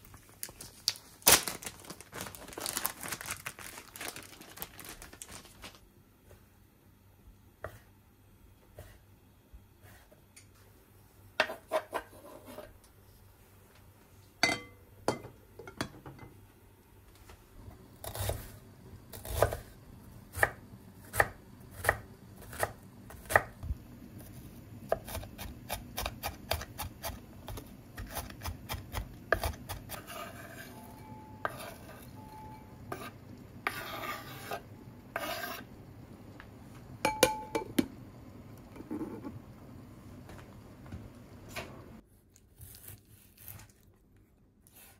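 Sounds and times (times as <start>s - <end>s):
knife scraping board: 11.4s - 12.7s, 29.3s - 30.8s, 31.4s - 32.1s, 32.9s - 35.7s.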